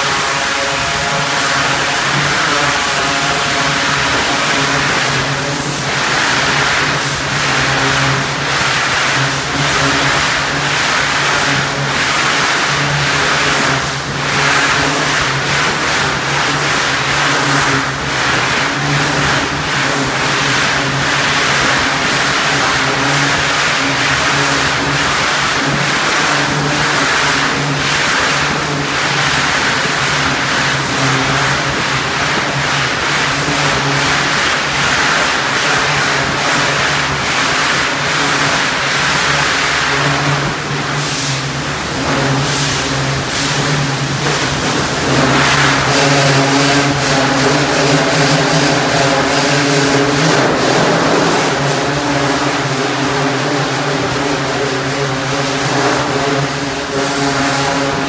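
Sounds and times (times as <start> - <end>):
pressure washer engine humming: 0.0 - 58.0
water jet hissing: 0.0 - 58.0.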